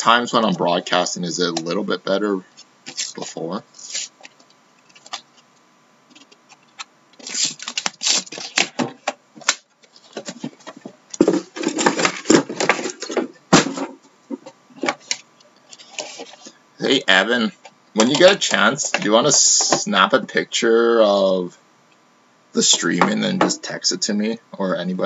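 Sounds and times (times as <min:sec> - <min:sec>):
cardboard rustling and scraping: 0:06.1 - 0:16.6.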